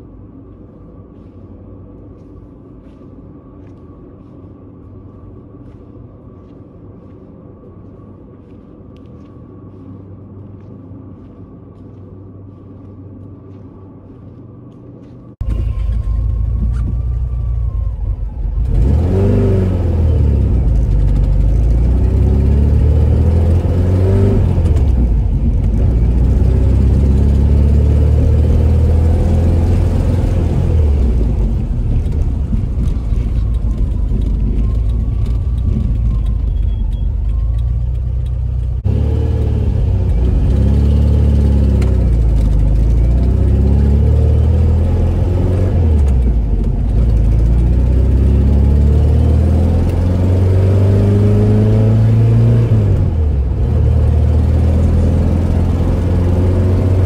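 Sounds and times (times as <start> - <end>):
low room hum: 0.0 - 18.8
car engine revving through gears: 18.6 - 57.0.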